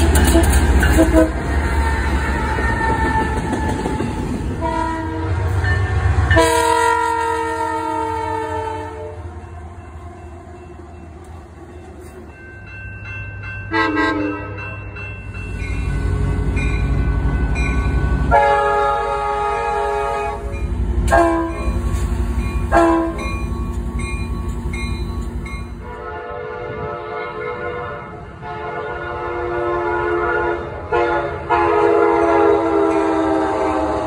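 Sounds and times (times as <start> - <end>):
locomotive air horn blasts: 0.0 - 3.1, 4.6 - 9.3, 13.7 - 14.6, 18.2 - 20.5, 21.1 - 21.9, 22.7 - 23.3, 25.8 - 34.0.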